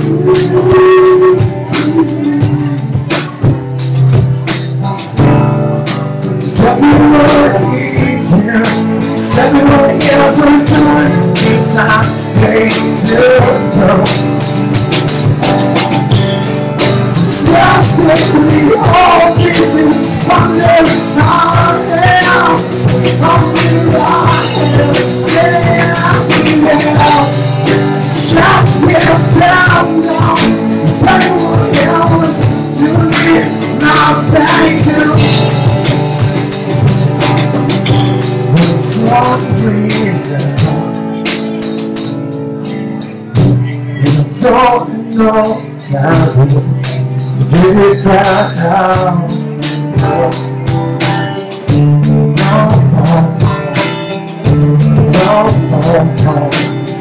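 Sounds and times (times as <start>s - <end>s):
person singing lead vocal: 0.0s - 41.9s, 42.6s - 57.0s
drum kit: 0.0s - 57.0s
guitars: 0.0s - 57.0s.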